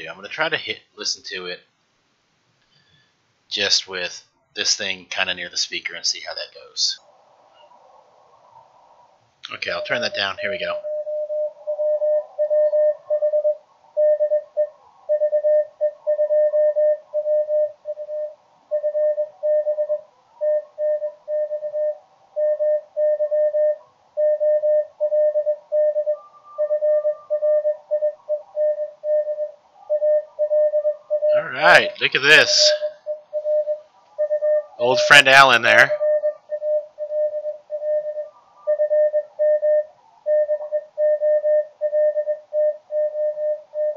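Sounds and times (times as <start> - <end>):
morse code tone: 9.5 - 43.9
fainter higher second tone: 9.6 - 43.9.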